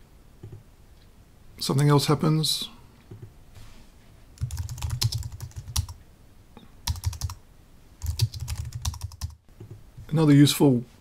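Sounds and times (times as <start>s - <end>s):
computer keyboard typing: 4.4s - 6.0s, 6.8s - 7.4s, 8.0s - 9.8s.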